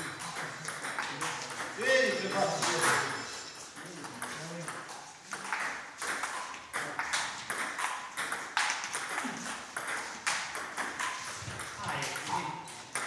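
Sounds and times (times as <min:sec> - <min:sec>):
ping pong ball clicking off paddles: 0:00.0 - 0:13.0
ball bouncing on tabletop: 0:04.2 - 0:13.0.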